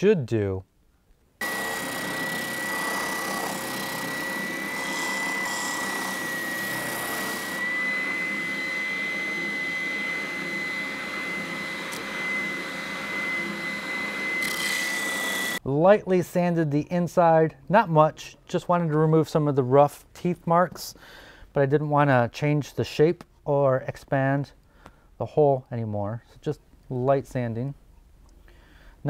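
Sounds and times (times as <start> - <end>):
sanding drum whining: 1.4 - 15.6.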